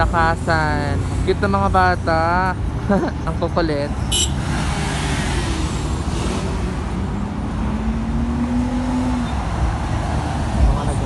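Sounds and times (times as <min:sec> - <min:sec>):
traffic rumble of engines and tyres: 0:00.0 - 0:11.0.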